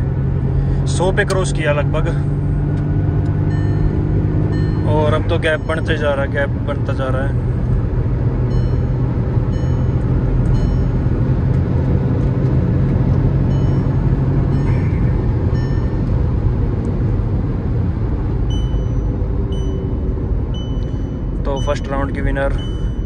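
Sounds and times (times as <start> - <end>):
car cabin road drone: 0.0 - 23.0
short high warning beeps: 3.5 - 6.2, 8.5 - 11.0, 13.5 - 16.1, 18.5 - 23.0.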